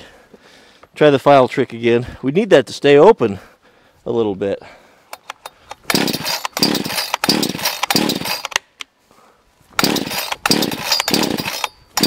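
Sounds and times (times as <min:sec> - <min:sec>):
chainsaw pull-cord starter: 0:05.1 - 0:08.6, 0:09.8 - 0:12.0
engine cranking: 0:05.2 - 0:08.6, 0:09.8 - 0:12.0.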